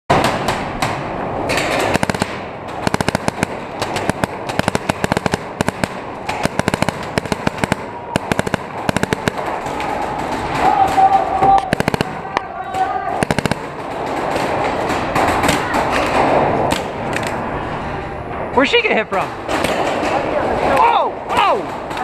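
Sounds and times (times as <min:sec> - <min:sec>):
paintball markers firing: 0:00.1 - 0:17.0.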